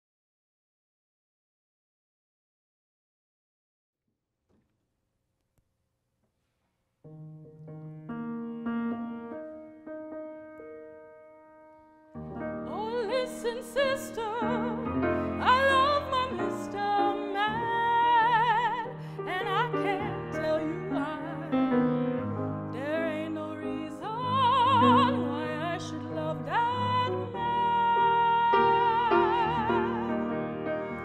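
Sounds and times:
piano chords: 0:07.1 - 0:31.0
woman singing operatically: 0:12.7 - 0:21.7, 0:22.7 - 0:30.4.

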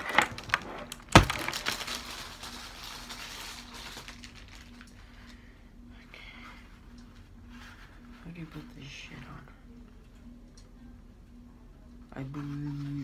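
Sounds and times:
packaging rustling and crinkling: 0:00.0 - 0:05.4.

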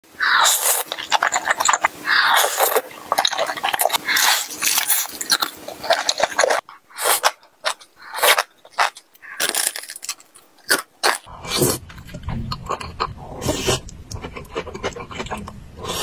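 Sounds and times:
slurping noodles: 0:00.2 - 0:07.4, 0:12.4 - 0:16.0
crunching fried chicken: 0:02.4 - 0:11.3.

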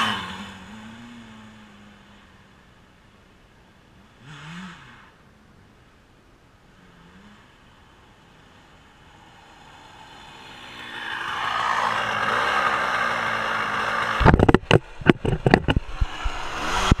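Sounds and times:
dirt bike engine revving: 0:00.0 - 0:02.0, 0:04.2 - 0:05.2, 0:06.8 - 0:17.0
knocks and bumps on microphone: 0:14.2 - 0:17.0.

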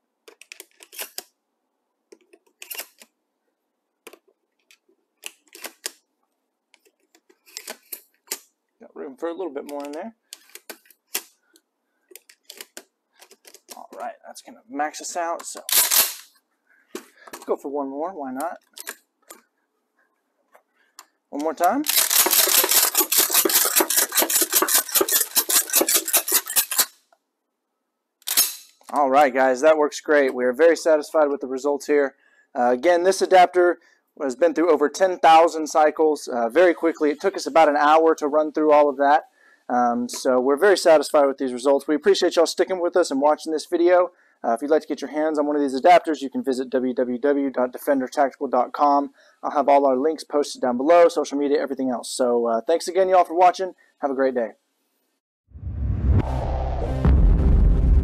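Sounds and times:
shotgun shells clicking into magazine: 0:21.9 - 0:26.9.

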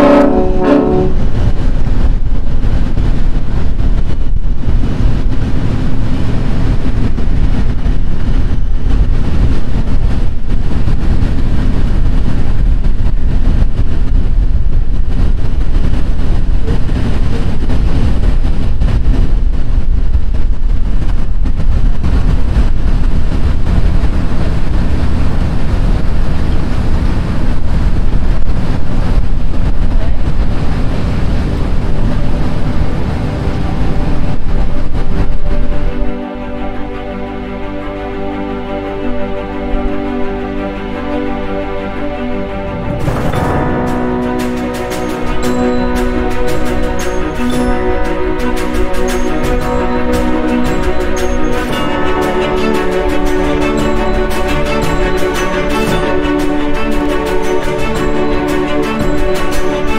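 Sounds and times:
wind buffeting microphone: 0:00.0 - 0:37.0
paddlewheel churning water: 0:00.3 - 0:36.7, 0:42.5 - 0:59.9.

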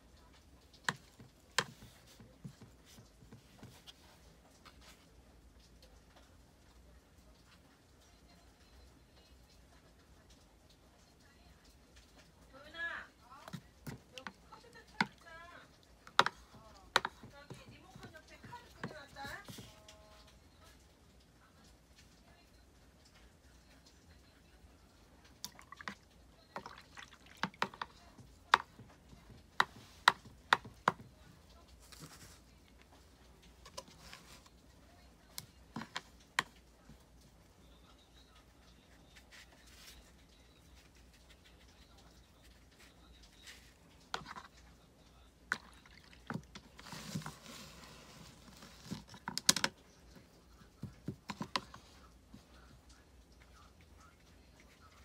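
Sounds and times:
liquid dripping: 0:10.0 - 0:47.6
soft rustle: 0:27.9 - 0:44.8, 0:46.6 - 0:49.2.

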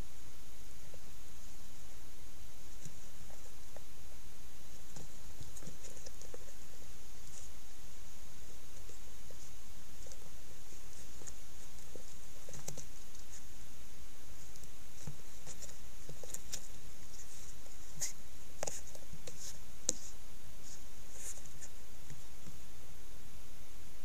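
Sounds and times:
steady hiss: 0:00.0 - 0:24.0
soft clicks and crackles: 0:04.7 - 0:07.6, 0:08.7 - 0:13.5, 0:14.4 - 0:22.6.

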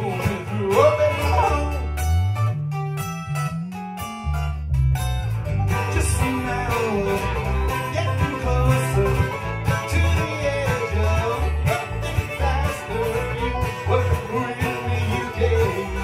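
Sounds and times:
acoustic guitars: 0:00.0 - 0:16.0
banjo: 0:00.0 - 0:16.0
bluegrass band playing: 0:00.0 - 0:16.0
fiddle: 0:05.5 - 0:16.0.

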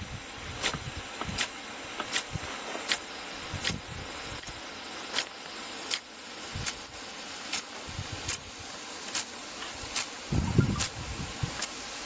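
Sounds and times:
water jet hissing: 0:00.0 - 0:12.0.

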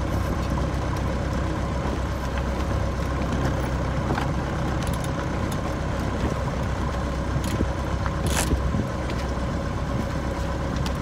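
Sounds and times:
engine droning steadily: 0:00.0 - 0:11.0.

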